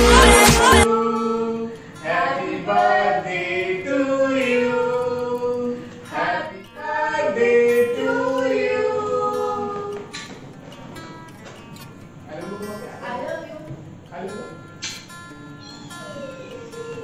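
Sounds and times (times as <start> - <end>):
person singing sliding notes: 0.0 - 10.1.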